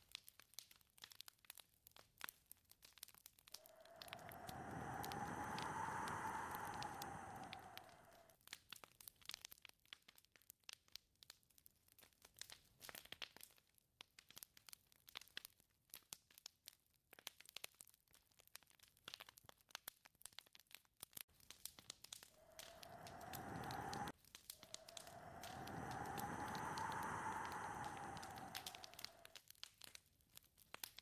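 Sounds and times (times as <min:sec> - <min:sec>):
wind gusts: 0:03.6 - 0:08.3, 0:22.4 - 0:29.4
faint irregular crackling: 0:21.4 - 0:29.4.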